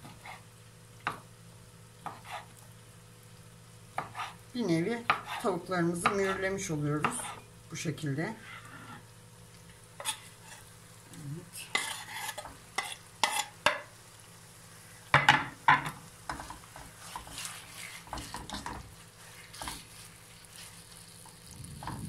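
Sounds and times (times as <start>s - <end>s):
spatula scraping a frying pan: 0.0s - 0.5s, 2.0s - 2.6s, 4.0s - 4.4s, 5.1s - 6.5s, 8.3s - 9.1s, 10.0s - 10.8s, 11.5s - 13.7s, 16.3s - 22.0s
chicken sizzling: 0.0s - 22.0s.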